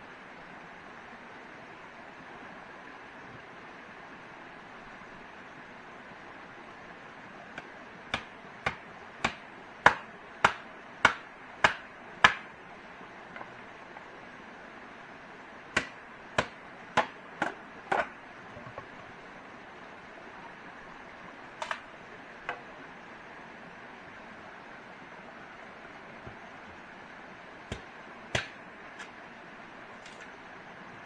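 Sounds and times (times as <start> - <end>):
hand tool striking wood: 8.1 - 12.4, 15.8 - 18.1, 27.7 - 29.1.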